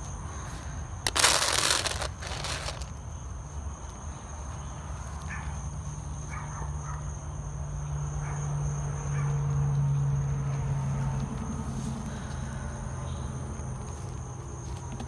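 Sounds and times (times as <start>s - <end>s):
insects trilling: 0.0s - 9.0s.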